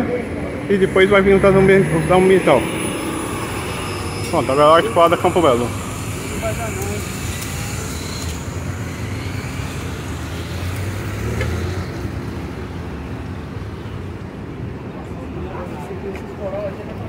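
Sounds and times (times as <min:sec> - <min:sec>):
bus driving past: 0:00.0 - 0:15.0
street traffic: 0:00.0 - 0:17.0.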